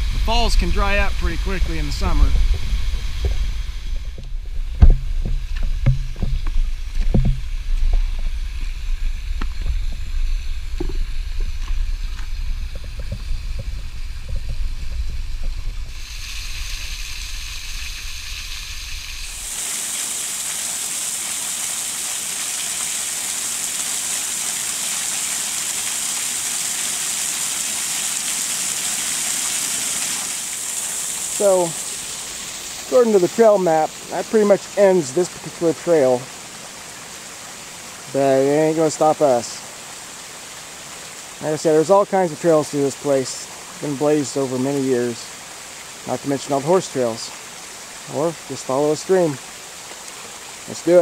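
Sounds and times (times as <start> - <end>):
low rumble: 0.0 - 19.5
small waterfall splashing: 0.0 - 51.0
footsteps on wet rocks: 0.8 - 15.6.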